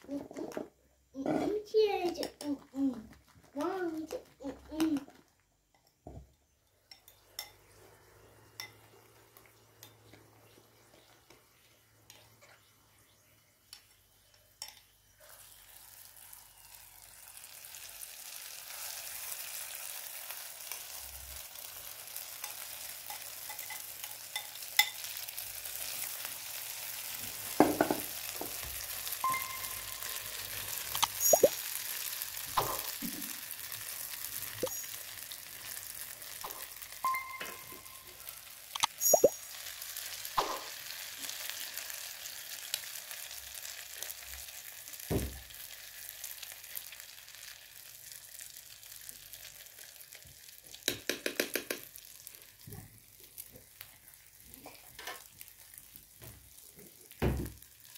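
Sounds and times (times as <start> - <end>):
oil sizzling in a frying pan: 3.4 - 57.9
spoon clinking against pan: 22.4 - 25.2, 29.2 - 30.1.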